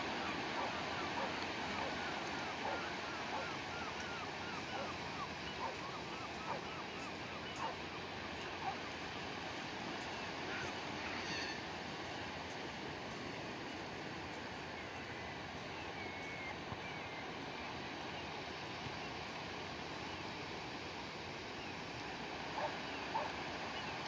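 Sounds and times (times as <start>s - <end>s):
sea surf: 0.0s - 24.0s
wind: 0.0s - 24.0s
faint bird calls: 0.1s - 9.0s, 9.9s - 12.3s, 14.6s - 19.3s, 22.6s - 24.0s.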